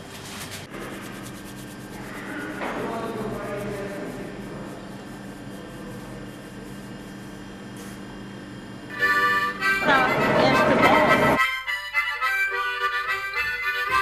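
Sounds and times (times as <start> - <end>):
low hum with hiss: 0.0 - 14.0
harmonica playing a chord: 8.9 - 14.0.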